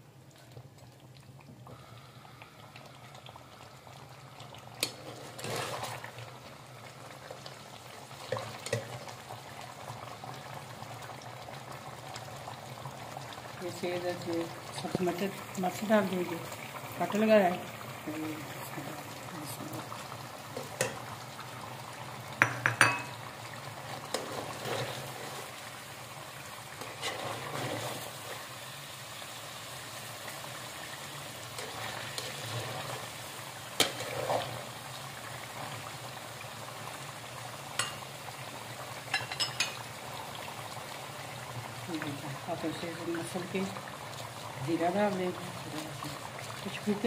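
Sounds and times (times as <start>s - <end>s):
curry bubbling in a pot: 0.0s - 47.0s.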